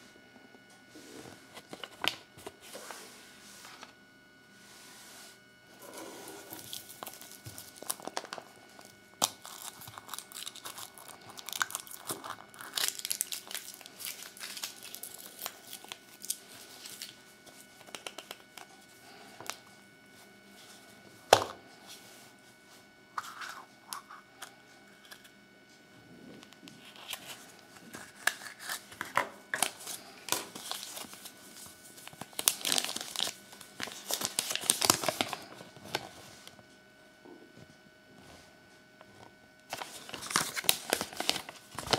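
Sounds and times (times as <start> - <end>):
paper crinkling: 5.8 - 19.6, 26.7 - 36.2, 39.7 - 41.9
foil wrapper crinkling: 5.9 - 19.6, 26.8 - 36.1, 39.7 - 41.9.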